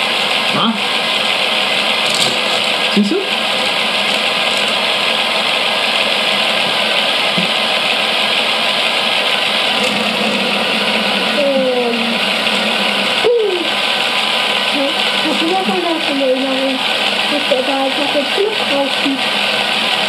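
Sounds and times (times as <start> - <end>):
toy motors whirring: 1.8 - 6.8.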